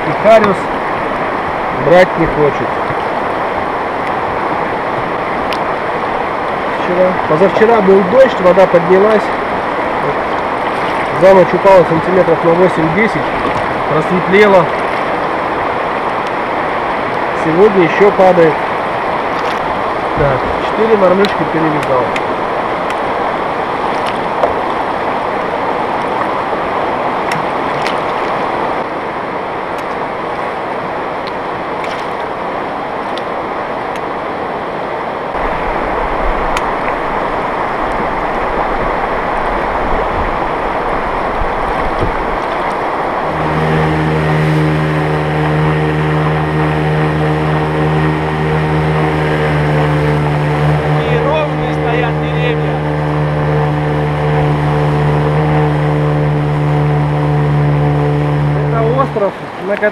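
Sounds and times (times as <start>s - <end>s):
outboard motor running: 0.0s - 34.2s, 35.3s - 59.9s
mountain river rushing: 0.0s - 59.9s.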